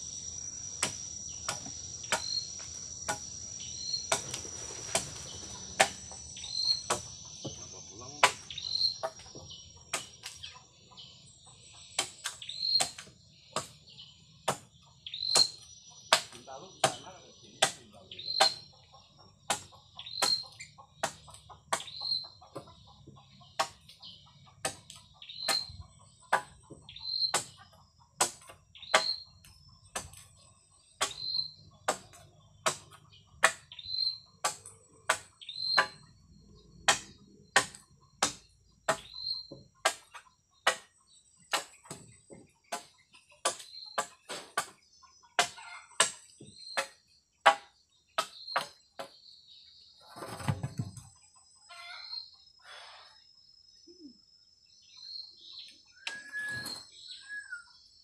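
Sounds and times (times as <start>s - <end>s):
insects chirring: 0.0s - 58.0s
machete chopping bamboo: 0.8s - 3.4s, 4.0s - 7.6s, 8.2s - 9.3s, 9.9s - 10.4s, 11.9s - 13.8s, 14.4s - 17.0s, 17.6s - 18.7s, 19.5s - 22.7s, 23.5s - 24.0s, 24.6s - 36.1s, 36.8s - 42.1s, 42.7s - 44.8s, 45.4s - 49.2s.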